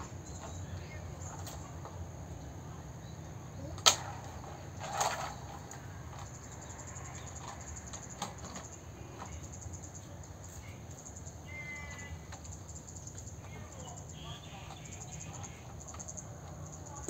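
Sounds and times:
low steady background: 0.0s - 17.0s
toy cars clicking on wooden boards: 3.7s - 11.0s, 11.8s - 17.0s.

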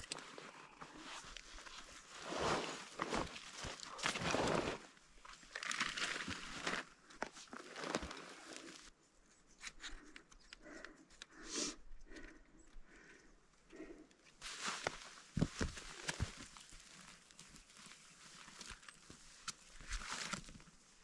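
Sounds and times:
backpack and clothing rustling: 0.2s - 8.9s.

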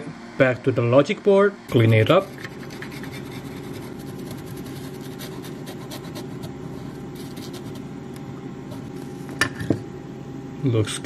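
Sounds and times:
steady low hum: 0.0s - 11.0s
cloth scrubbing circuit board: 1.7s - 8.0s, 8.6s - 9.4s.

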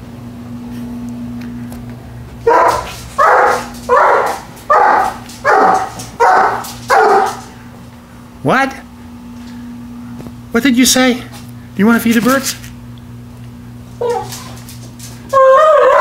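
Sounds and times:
steady low hum: 0.0s - 16.0s
dog barking: 2.4s - 7.5s, 14.0s - 14.5s, 15.3s - 16.0s.

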